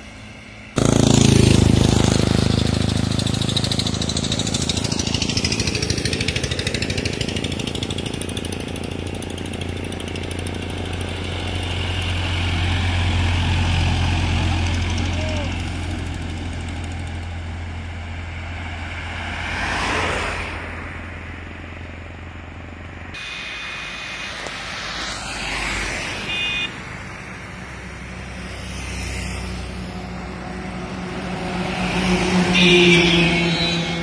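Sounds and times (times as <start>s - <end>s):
crane engine hum: 0.0s - 18.8s, 20.9s - 34.0s
cars passing: 0.0s - 34.0s
truck engine: 0.0s - 34.0s
motorcycle passing: 0.6s - 22.4s, 23.7s - 34.0s
high beep: 26.2s - 26.7s.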